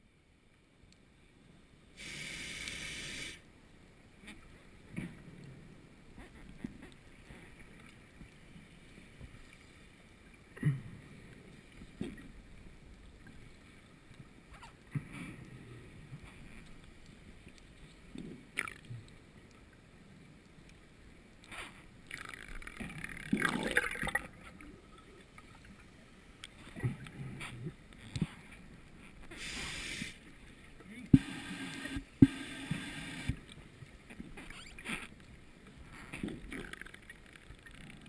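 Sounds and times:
regulator inhalation hiss: 2.0 - 3.4, 29.3 - 30.3, 31.2 - 33.4
underwater bubbling: 2.0 - 3.4, 21.7 - 38.0.

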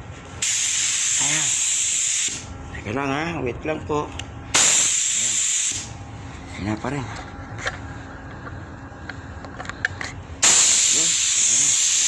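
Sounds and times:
paint spray gun hissing: 0.4 - 2.4, 4.6 - 5.9, 10.4 - 12.0.

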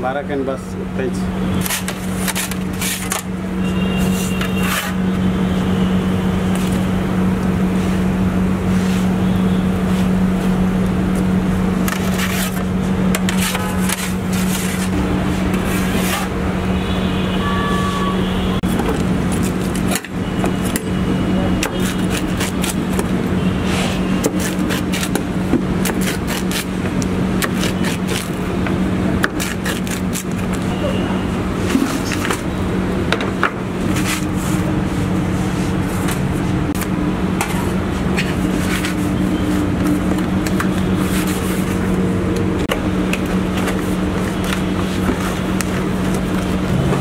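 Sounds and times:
clicks and scrapes: 11.8 - 16.3.

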